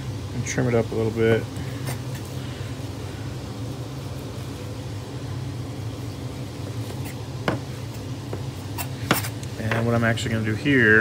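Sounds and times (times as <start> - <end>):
low mechanical hum: 0.0 - 11.0
knife on plastic cutting board: 8.7 - 9.4.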